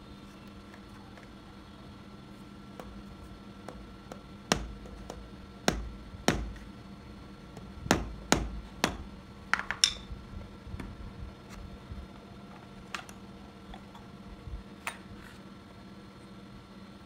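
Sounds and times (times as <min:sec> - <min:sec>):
mallet knocking on motor shaft: 0:04.1 - 0:06.7, 0:07.6 - 0:09.8.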